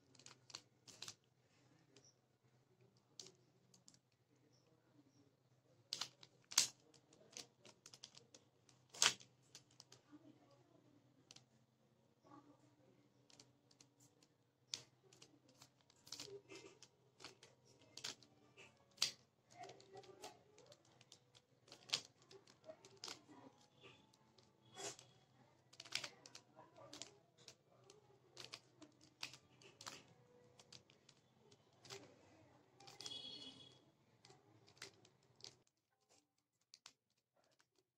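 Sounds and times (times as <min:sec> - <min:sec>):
puzzle cube clicking: 0:00.0 - 0:01.3, 0:05.9 - 0:10.0, 0:13.2 - 0:32.2, 0:32.8 - 0:35.7.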